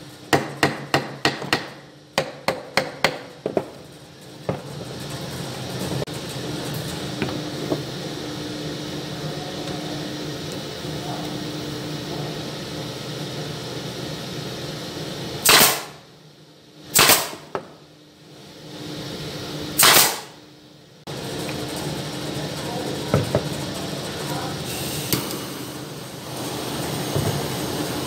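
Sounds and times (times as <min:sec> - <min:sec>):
pneumatic nailer firing: 0:15.4 - 0:16.0, 0:16.9 - 0:17.5, 0:19.8 - 0:20.4
short hiss of air: 0:19.8 - 0:20.3.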